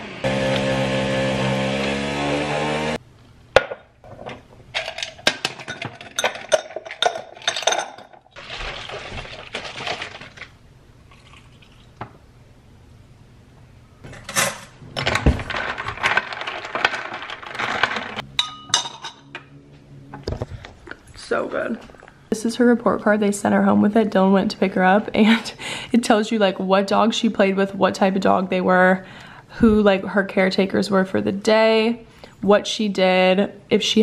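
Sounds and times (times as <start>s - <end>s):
liquid pouring into glass: 11.1s - 12.0s
ice cubes clinking in glass: 15.0s - 19.2s.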